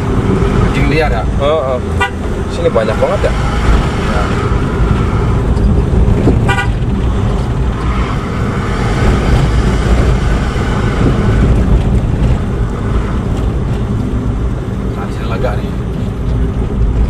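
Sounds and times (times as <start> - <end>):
road noise: 0.0 - 17.0
vehicle engine rumble: 0.0 - 17.0.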